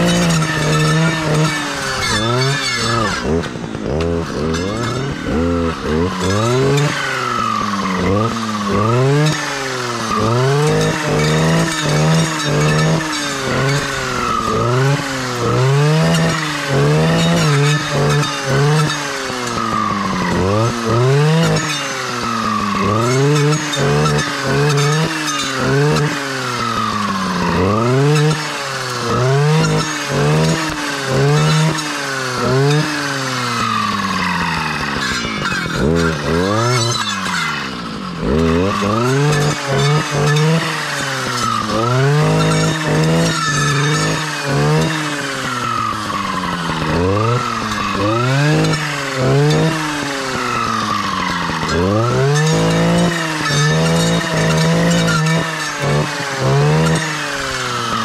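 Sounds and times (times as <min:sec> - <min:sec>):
clearing saw engine revving: 0:00.0 - 0:58.0.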